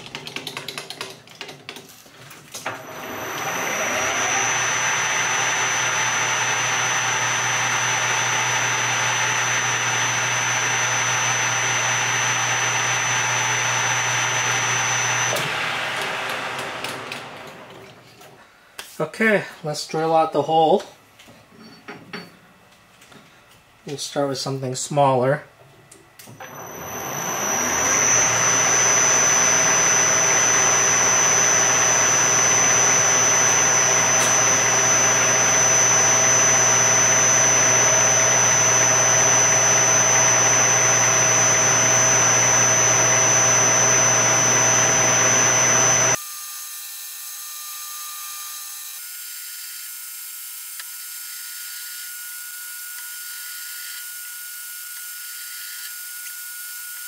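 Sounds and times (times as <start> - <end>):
drill whine: 2.6 - 18.3, 26.3 - 57.0
metal lathe running: 2.7 - 18.0, 26.4 - 46.2.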